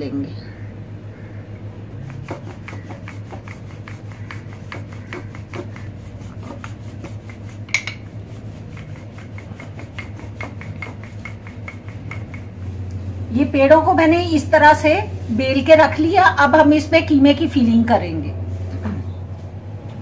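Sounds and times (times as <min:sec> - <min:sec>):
rolling pin ticking on stone: 0:02.1 - 0:12.6.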